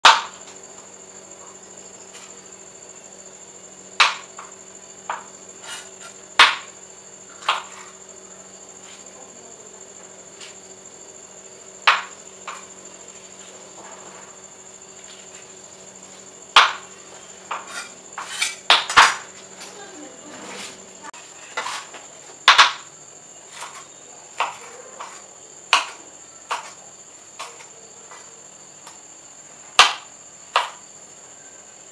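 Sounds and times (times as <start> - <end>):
knife chopping on wooden board: 4.0 - 4.5, 5.1 - 6.7, 11.9 - 12.7, 16.6 - 16.9, 23.5 - 26.8, 29.8 - 30.8.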